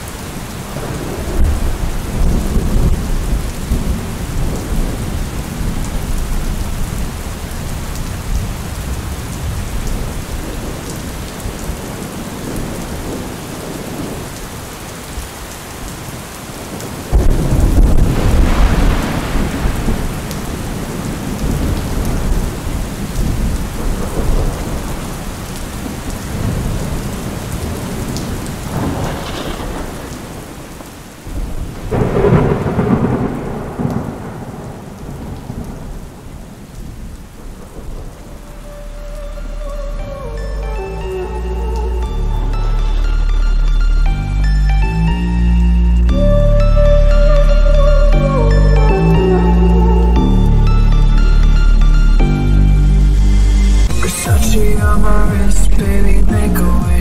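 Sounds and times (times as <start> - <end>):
steady rain: 0.0 - 57.0
loud thunderclap: 0.8 - 6.8, 17.1 - 27.9, 28.7 - 30.6, 31.3 - 36.2
rumbling thunder: 0.8 - 14.3, 17.1 - 38.5.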